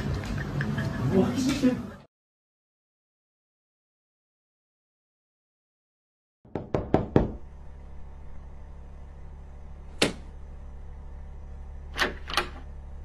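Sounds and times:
steady low hum: 7.2 - 13.0.

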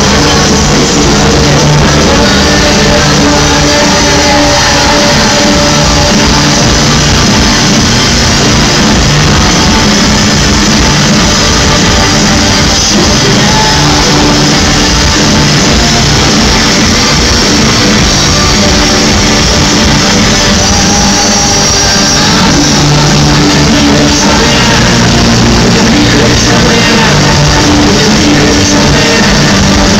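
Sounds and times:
loud live rock band: 0.0 - 29.9.

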